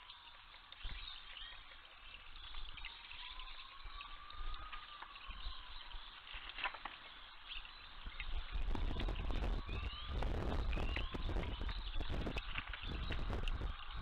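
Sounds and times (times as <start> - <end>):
water trickling into pool: 0.0 - 14.0.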